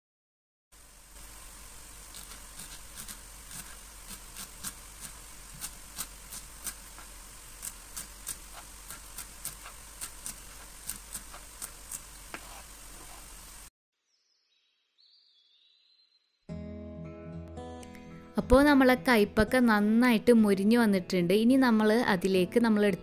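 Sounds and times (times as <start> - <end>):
steady hiss: 0.8 - 13.7.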